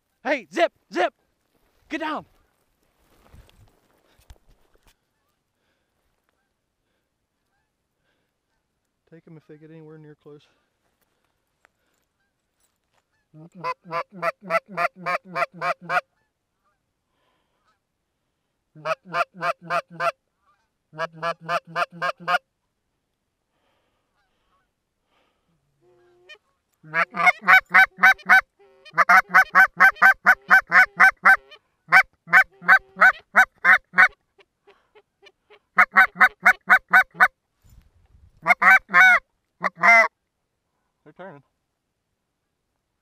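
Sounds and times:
goose call honks: 13.2 - 16.8, 18.8 - 22.4, 25.8 - 37.3, 38.4 - 40.1.

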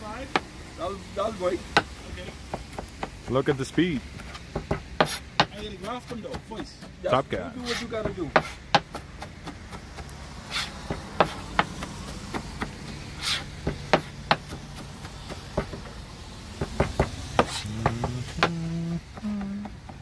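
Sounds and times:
knife chopping on cutting board: 4.6 - 7.0, 7.7 - 15.8, 16.6 - 18.7.

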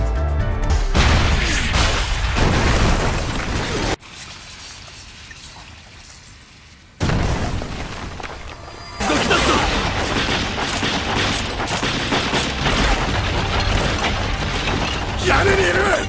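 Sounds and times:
background music: 0.0 - 1.4, 9.0 - 16.0
booms: 7.0 - 15.3.

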